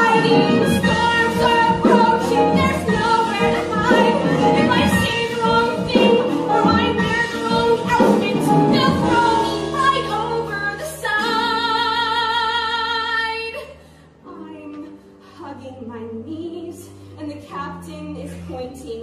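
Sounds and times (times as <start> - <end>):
instrumental accompaniment: 0.0 - 13.4
woman singing: 0.0 - 19.0.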